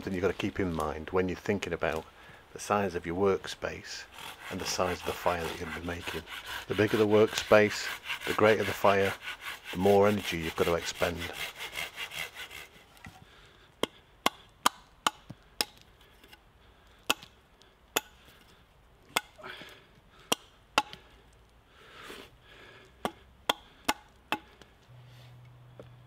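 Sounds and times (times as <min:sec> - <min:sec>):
hatchet chopping wood: 0:13.8 - 0:15.9, 0:17.0 - 0:18.3, 0:19.1 - 0:19.4, 0:20.2 - 0:21.0, 0:23.0 - 0:24.7.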